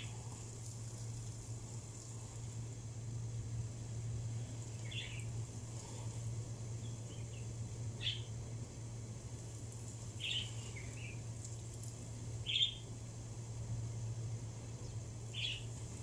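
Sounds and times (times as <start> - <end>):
steady low hum: 0.0 - 16.0
birds chirping: 3.6 - 8.4, 10.0 - 11.4, 12.4 - 13.0, 14.6 - 16.0.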